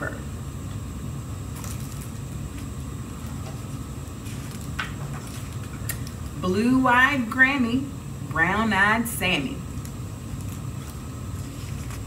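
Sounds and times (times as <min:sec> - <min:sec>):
low room hum: 0:00.0 - 0:12.0
book page rustling: 0:01.5 - 0:06.1, 0:10.3 - 0:12.0.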